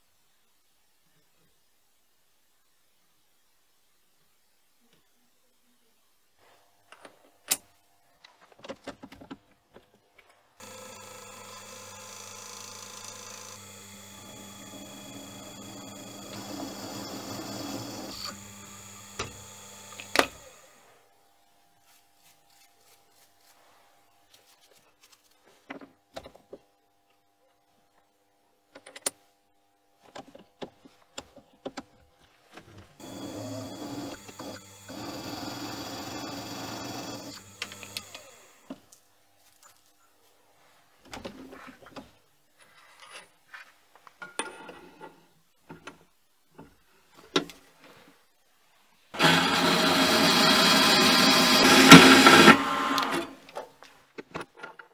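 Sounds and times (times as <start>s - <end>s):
drill press drilling into metal: 10.6s - 20.6s, 33.0s - 38.6s, 49.2s - 53.3s.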